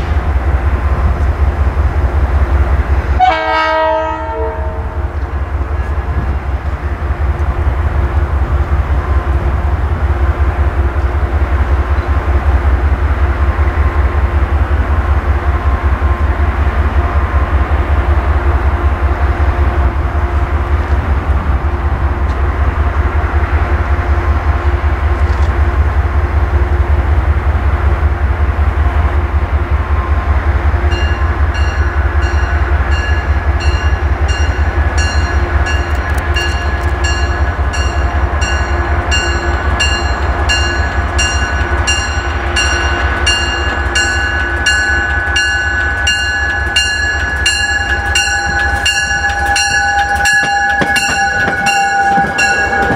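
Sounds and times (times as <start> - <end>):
diesel train rumble: 0.0 - 52.9
high steady tone: 30.9 - 52.9
train bell ringing: 30.9 - 52.9.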